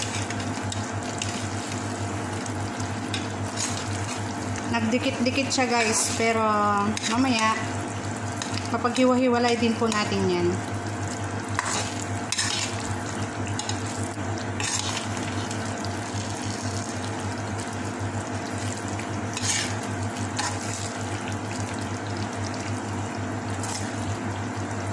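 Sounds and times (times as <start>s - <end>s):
steady low hum: 0.0s - 24.9s
syrup bubbling and sizzling: 0.0s - 24.9s
metal spoon scraping pan: 19.4s - 19.8s.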